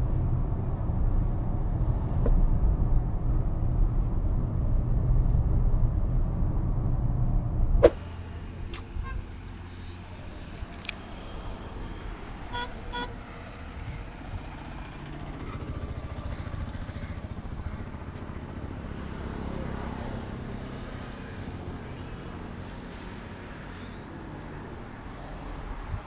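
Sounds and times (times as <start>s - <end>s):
road traffic: 0.0s - 26.0s
car horn toots: 12.5s - 13.1s.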